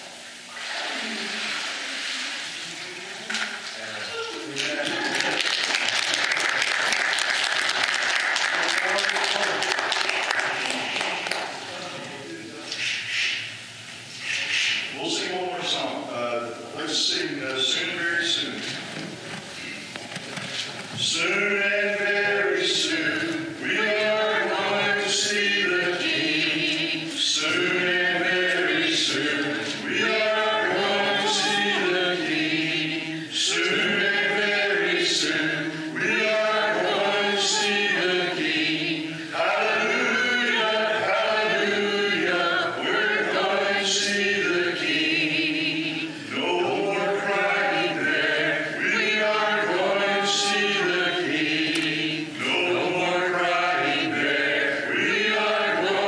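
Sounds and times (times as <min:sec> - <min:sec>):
congregation singing a hymn: 0:14.9 - 0:19.1, 0:20.9 - 0:56.0.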